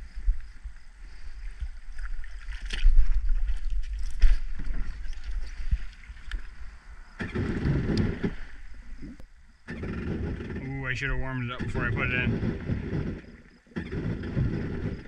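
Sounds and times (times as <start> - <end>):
wind rumbling on microphone: 0.0 - 15.0
water splashes and knocks: 1.6 - 6.4
jet ski engine sputtering: 7.2 - 8.4, 9.7 - 15.0.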